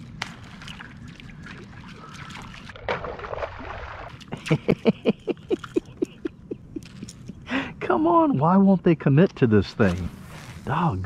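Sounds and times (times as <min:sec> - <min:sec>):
fish splashing at surface: 0:00.0 - 0:04.3.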